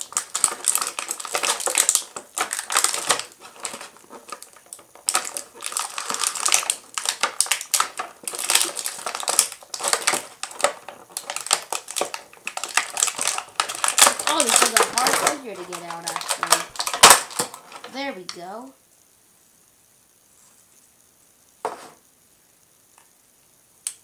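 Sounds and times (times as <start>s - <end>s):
plastic packaging crinkling: 0.0s - 18.4s.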